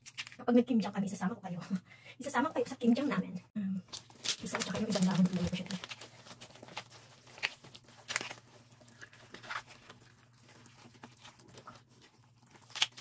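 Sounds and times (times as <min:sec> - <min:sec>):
wet squelches and soft smacks: 0:06.5 - 0:13.0.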